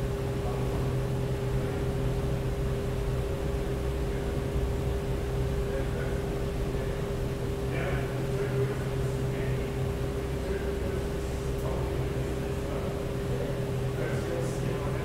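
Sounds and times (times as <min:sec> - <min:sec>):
steady mechanical hum: 0:00.0 - 0:15.0.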